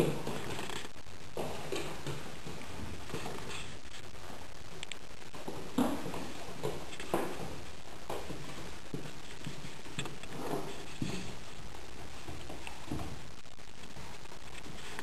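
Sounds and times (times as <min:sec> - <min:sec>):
rabbit feet thumping on hard floor: 0:00.0 - 0:03.8, 0:05.4 - 0:13.3.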